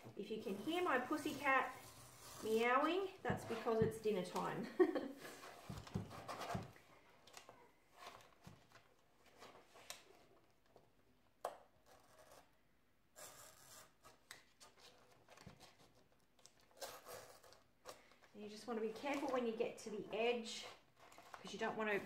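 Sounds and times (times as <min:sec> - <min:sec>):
craft knife scratching paper: 0:00.5 - 0:03.8, 0:11.8 - 0:12.6, 0:13.2 - 0:17.7.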